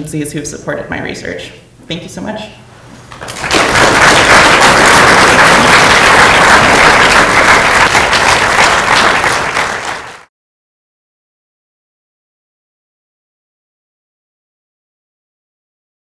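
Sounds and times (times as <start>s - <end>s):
audience applauding: 3.1s - 10.3s.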